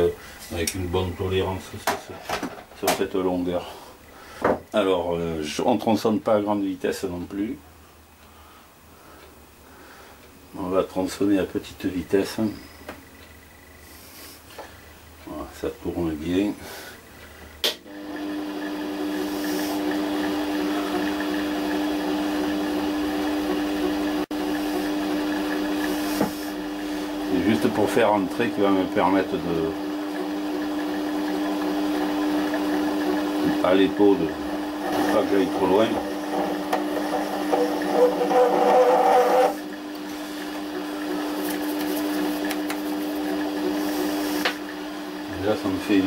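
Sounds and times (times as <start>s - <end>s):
lathe motor hum: 15.9s - 46.0s.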